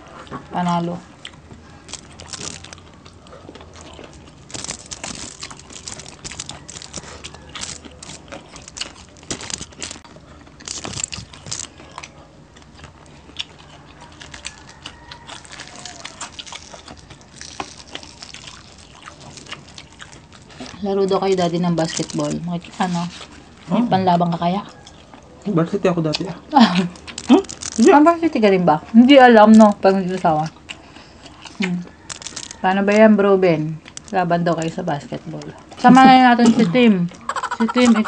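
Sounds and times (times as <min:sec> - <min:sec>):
chewing and crunching: 0:00.0 - 0:38.0
fish being picked apart: 0:01.8 - 0:03.1, 0:04.1 - 0:11.8, 0:14.2 - 0:20.0, 0:31.2 - 0:32.6.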